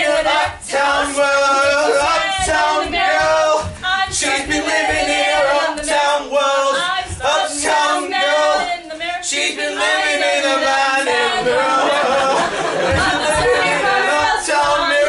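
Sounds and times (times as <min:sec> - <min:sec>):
voices singing together: 0:00.0 - 0:15.0.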